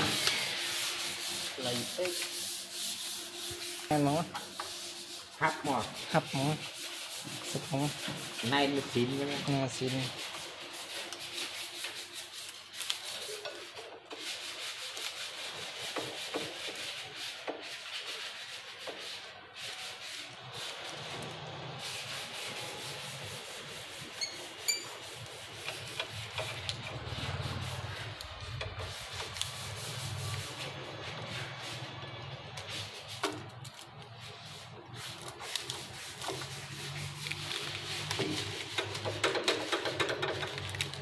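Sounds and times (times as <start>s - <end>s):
screwdriver scraping into wood: 24.1s - 27.0s.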